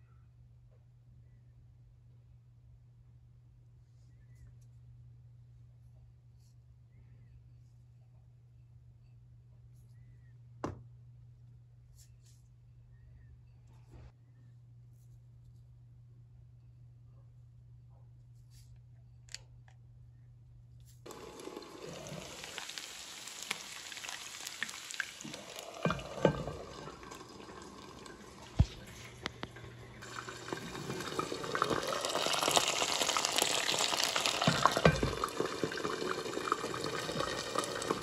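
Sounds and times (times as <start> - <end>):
hot oil sizzling in pan: 21.1 - 38.0
pan knocking: 25.3 - 27.6, 34.2 - 36.0.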